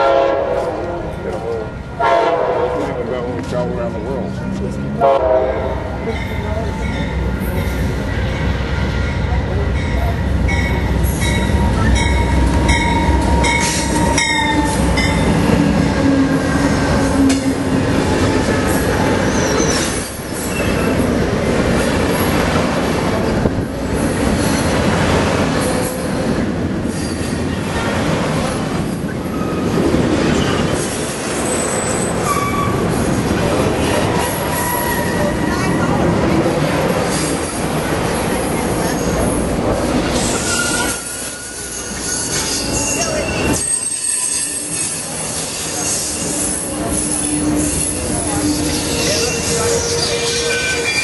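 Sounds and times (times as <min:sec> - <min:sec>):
train wheels rumbling on rail: 0:00.0 - 0:51.0
high wheel squeal: 0:18.5 - 0:21.1, 0:30.4 - 0:33.0, 0:34.2 - 0:36.0, 0:40.2 - 0:51.0.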